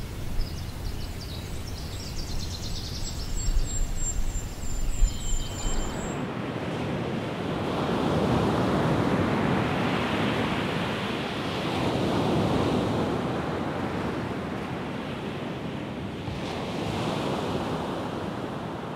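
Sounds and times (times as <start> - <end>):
ocean waves breaking on beach: 5.7 - 18.9.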